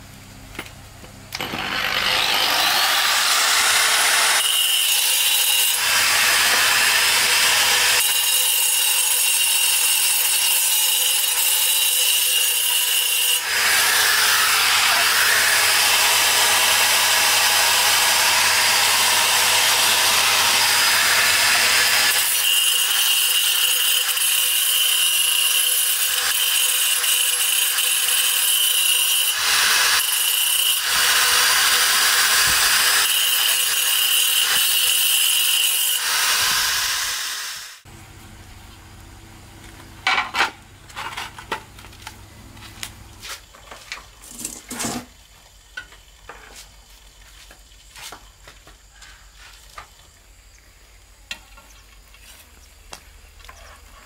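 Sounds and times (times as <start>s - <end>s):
angle grinder cutting tile: 1.3s - 37.9s.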